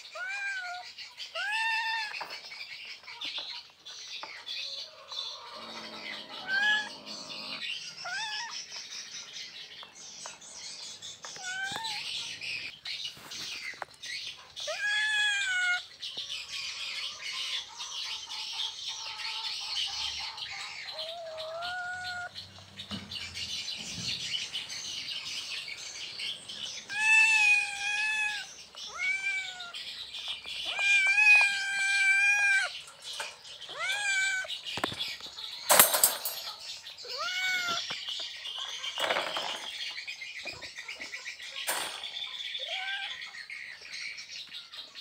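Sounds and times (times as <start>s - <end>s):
cat meowing: 0.0s - 0.8s, 1.4s - 2.2s, 5.8s - 8.6s, 11.4s - 12.1s, 14.7s - 15.8s, 21.1s - 22.3s, 26.9s - 29.8s, 30.6s - 32.8s, 33.7s - 34.6s, 37.0s - 37.9s.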